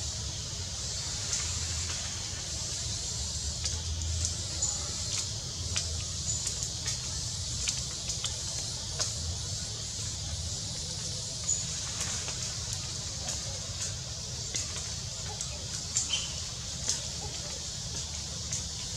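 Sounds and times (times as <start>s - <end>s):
steady high hiss: 0.0s - 18.9s
faint clicks and rustles: 0.8s - 18.9s.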